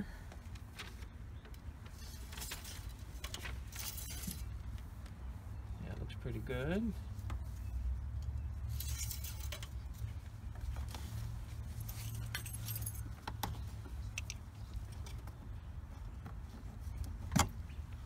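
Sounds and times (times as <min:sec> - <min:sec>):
rag rustling: 0:00.6 - 0:05.5, 0:08.6 - 0:15.0
light metallic clinks: 0:08.7 - 0:09.8.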